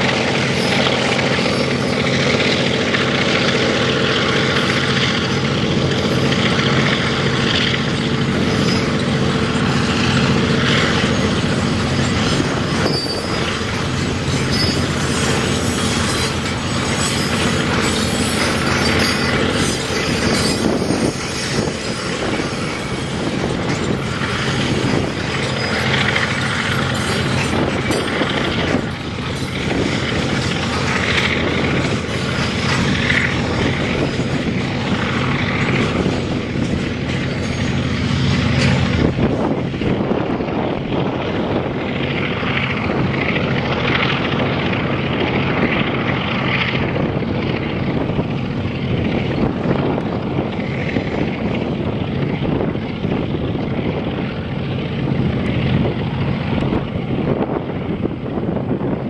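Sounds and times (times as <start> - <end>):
diesel locomotive engine drone: 0.0 - 59.0
rushing noise: 0.0 - 59.0.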